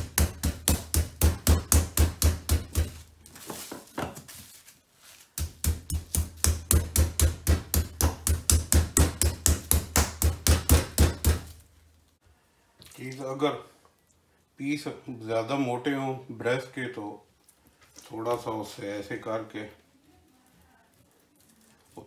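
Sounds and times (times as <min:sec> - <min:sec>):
mallet pounding meat: 0:00.0 - 0:03.0, 0:05.4 - 0:11.5.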